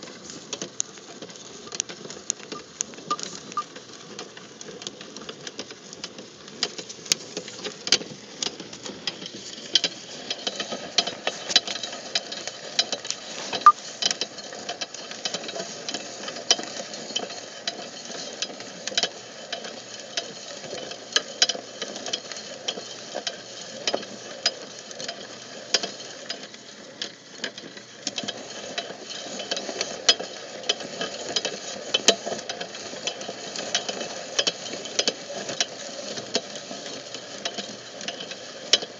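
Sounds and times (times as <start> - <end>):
wood chips ticking and clicking: 0.0 - 32.2
auger scraping wood chips: 13.0 - 14.0.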